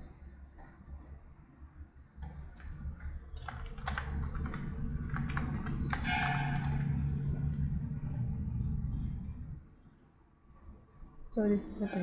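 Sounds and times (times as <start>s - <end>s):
keyboard typing: 0.0s - 1.3s, 2.2s - 9.6s
low steady hum: 0.0s - 12.0s.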